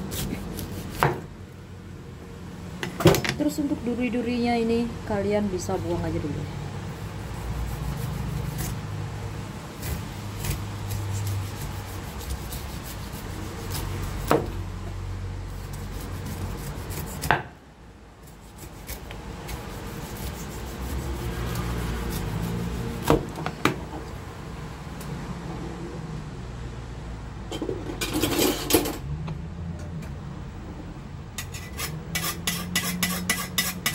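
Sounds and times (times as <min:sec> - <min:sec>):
cleaver scraping pineapple skin: 0:00.0 - 0:01.2, 0:06.9 - 0:08.9, 0:09.8 - 0:14.6, 0:15.5 - 0:17.3, 0:18.2 - 0:23.4, 0:31.4 - 0:33.9.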